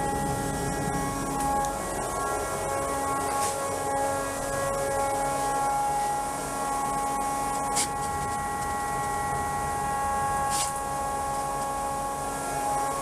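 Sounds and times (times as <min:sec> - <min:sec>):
steady pitched hum: 0:00.0 - 0:13.0.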